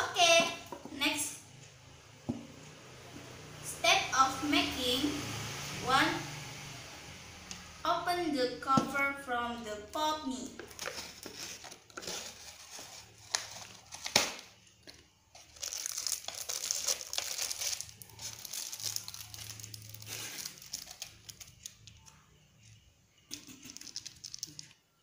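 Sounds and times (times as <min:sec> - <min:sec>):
foil and plastic crinkling: 0:10.6 - 0:14.5, 0:15.3 - 0:21.8
sharp packaging crackles: 0:10.6 - 0:14.6, 0:15.3 - 0:22.2, 0:23.7 - 0:24.8.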